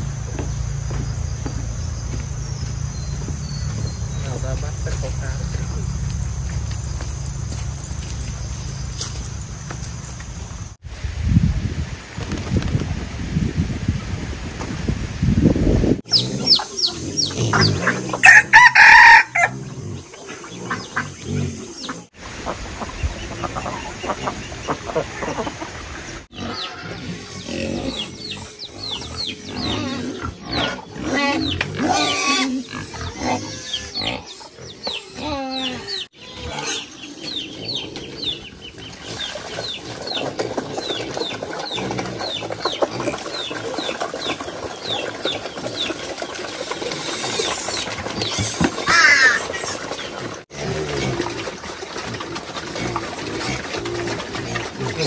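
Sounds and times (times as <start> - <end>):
pigs grunting and squealing: 16.1 - 22.2, 26.3 - 55.0
chickens clucking: 16.1 - 55.0
rooster crowing: 18.2 - 19.5.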